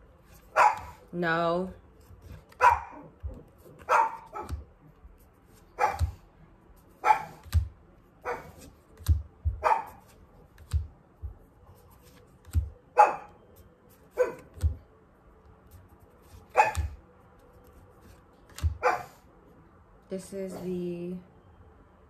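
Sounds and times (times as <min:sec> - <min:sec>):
dog barking: 0:00.5 - 0:01.0, 0:02.6 - 0:03.1, 0:03.8 - 0:04.6, 0:05.8 - 0:06.2, 0:07.0 - 0:07.5, 0:08.2 - 0:08.6, 0:09.6 - 0:10.0, 0:12.9 - 0:13.4, 0:14.1 - 0:14.6, 0:16.5 - 0:17.0, 0:18.7 - 0:19.2.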